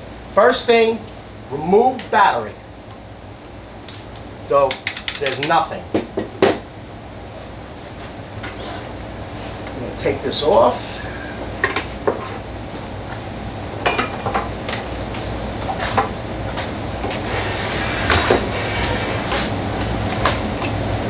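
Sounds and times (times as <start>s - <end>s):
steady low hum: 0.0s - 21.0s
knocks and clicks of handled parts: 4.7s - 6.6s.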